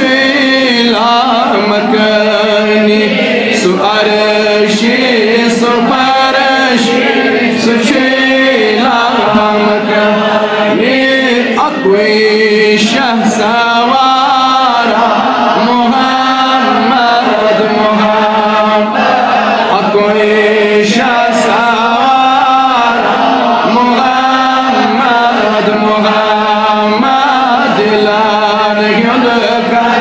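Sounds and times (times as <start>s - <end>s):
man singing devotional song: 0.0s - 30.0s.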